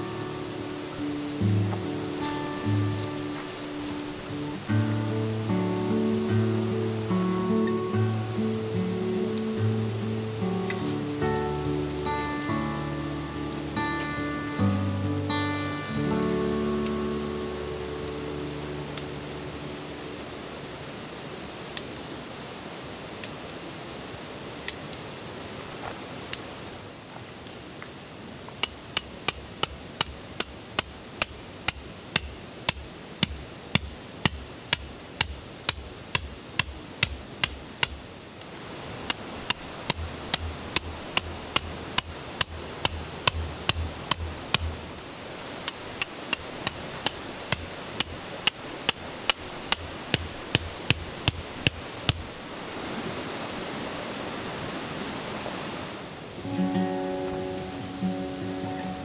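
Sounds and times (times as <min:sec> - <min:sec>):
hammer striking metal tent peg: 0:28.6 - 0:38.0, 0:39.1 - 0:44.8, 0:45.7 - 0:52.3.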